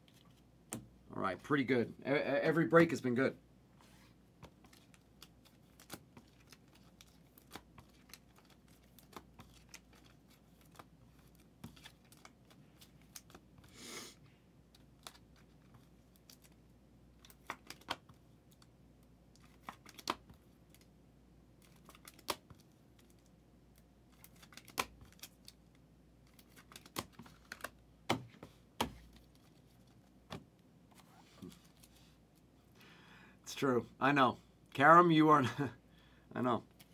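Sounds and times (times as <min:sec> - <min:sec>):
cards clicking and tapping: 0:17.2 - 0:18.2, 0:24.2 - 0:25.3, 0:26.3 - 0:29.3.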